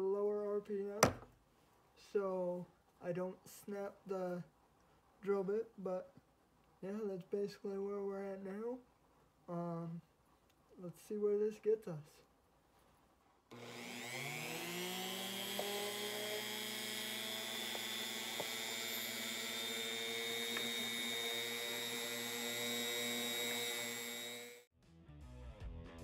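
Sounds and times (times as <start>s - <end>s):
rotary tool whine: 13.5s - 24.7s.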